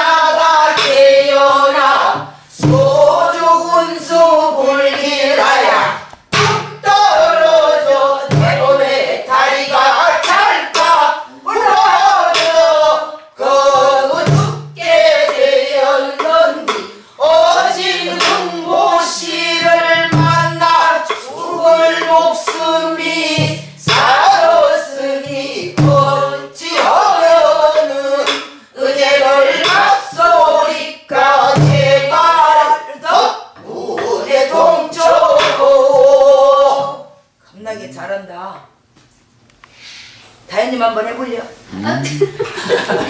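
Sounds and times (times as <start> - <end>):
voices singing melody: 0.0 - 37.3
low drum thumps: 8.2 - 9.0.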